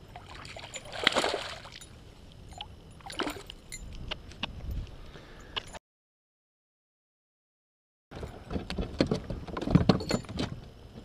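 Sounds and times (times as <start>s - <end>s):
water splashing beside kayak: 0.1s - 1.8s.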